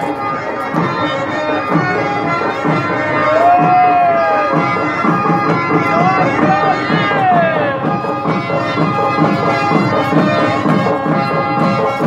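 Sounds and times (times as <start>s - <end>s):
drum beat: 0.0s - 12.0s
pipe music with drone: 0.0s - 12.0s.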